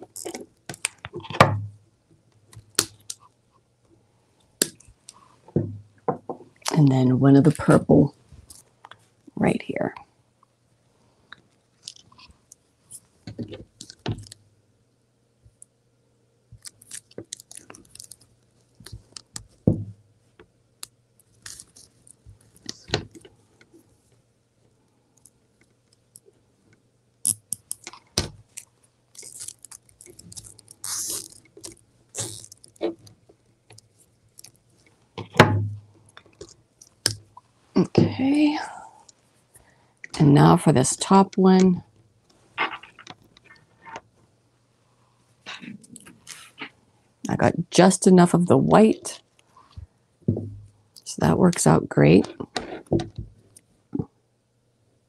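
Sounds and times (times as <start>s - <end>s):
small clicks and scrapes: 16.6s - 19.6s, 20.4s - 35.4s, 36.0s - 37.5s, 42.2s - 44.1s.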